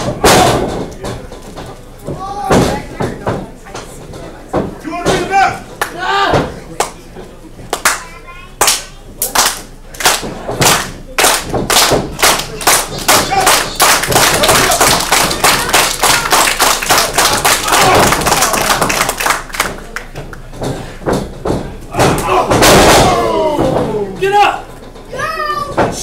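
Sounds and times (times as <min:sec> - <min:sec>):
people shouting: 0:00.0 - 0:00.8, 0:05.1 - 0:06.6, 0:13.1 - 0:18.7, 0:21.9 - 0:26.0
wrestling slaps and thuds: 0:00.0 - 0:07.0, 0:10.0 - 0:25.0.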